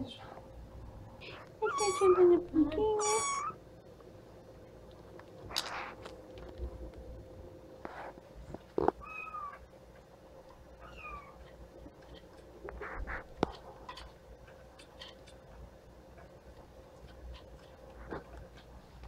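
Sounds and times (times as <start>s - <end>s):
kittens meowing: 1.6s - 2.4s, 3.0s - 3.6s, 9.0s - 9.6s, 10.8s - 11.4s.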